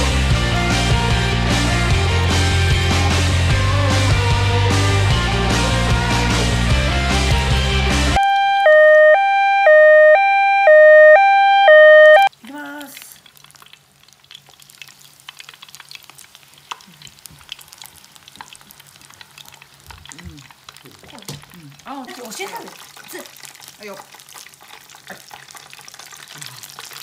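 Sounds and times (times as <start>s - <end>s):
rock music: 0.0s - 8.8s
electronic two-note chime: 8.2s - 12.3s
food deep-frying in oil: 12.3s - 27.0s.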